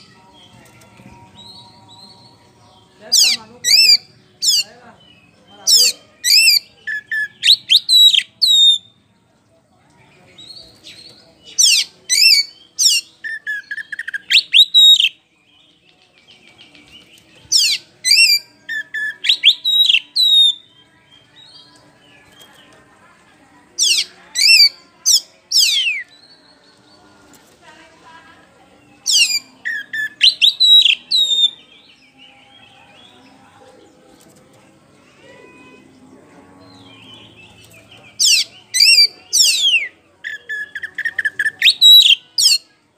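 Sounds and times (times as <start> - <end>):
bird singing whistled phrases: 5.8 - 8.9, 11.6 - 15.2, 17.5 - 20.7, 29.0 - 31.9, 38.2 - 42.7.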